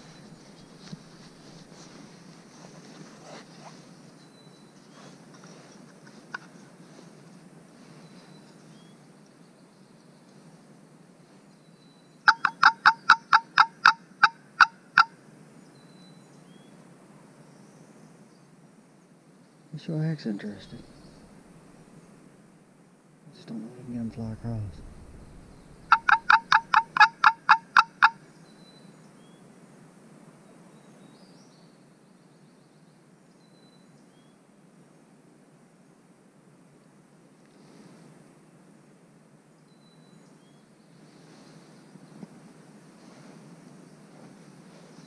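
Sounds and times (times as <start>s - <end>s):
turkey call yelps: 12.3s - 15.1s, 25.9s - 28.2s
distant songbird chirps: 20.4s - 22.0s, 23.6s - 29.4s.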